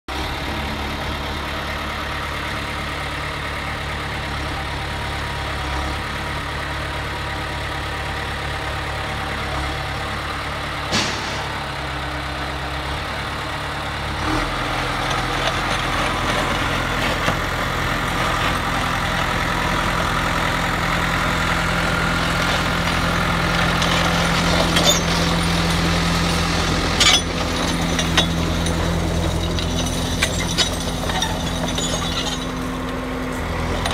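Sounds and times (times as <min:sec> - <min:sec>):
diesel engine running: 0:00.1 - 0:33.9
sharp metallic clanks: 0:10.9 - 0:12.0.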